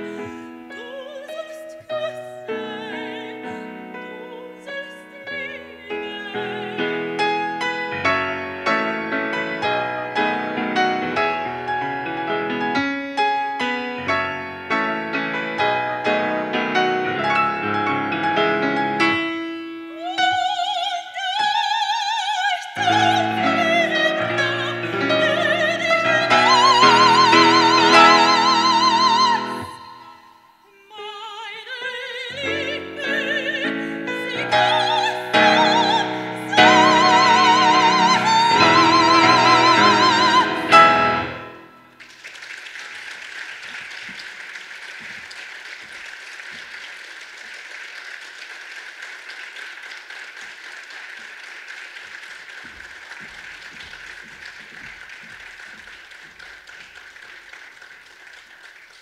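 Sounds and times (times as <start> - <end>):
soprano singing: 0.0 - 12.8, 13.5 - 41.9
grand piano: 0.0 - 59.0
audience applause: 36.6 - 59.0.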